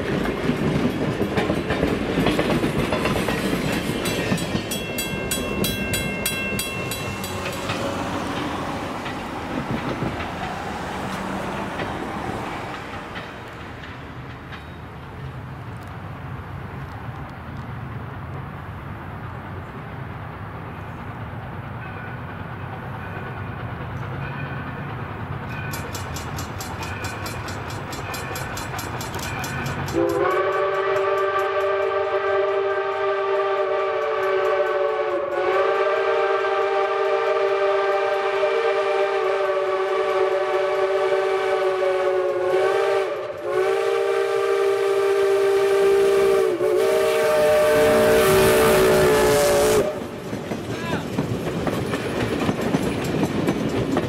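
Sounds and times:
train passing with loud rush: 0.0 - 54.0
steam locomotive chime whistle: 3.9 - 8.3, 25.5 - 50.2.

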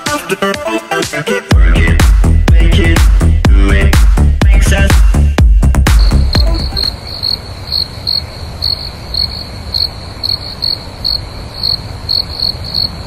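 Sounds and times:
insects trilling: 6.4 - 13.0.

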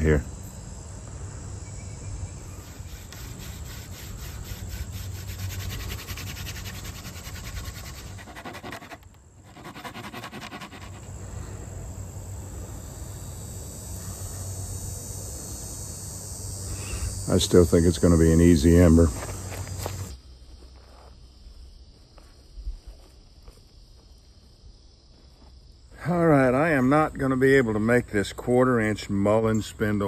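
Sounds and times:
crickets chirping: 0.0 - 30.0
blade rasping into wood: 2.6 - 11.1.

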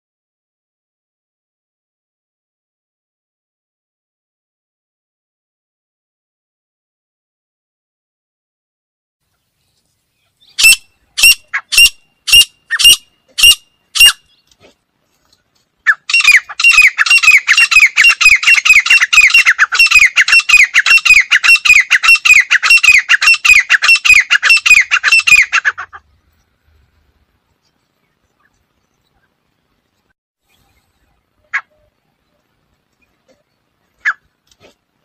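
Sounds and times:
francolin calling: 10.2 - 14.6, 15.8 - 26.4.

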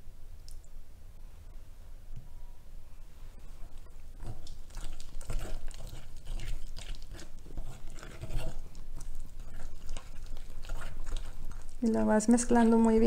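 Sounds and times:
fork scraping a glass bowl: 4.8 - 8.7, 9.4 - 11.4.

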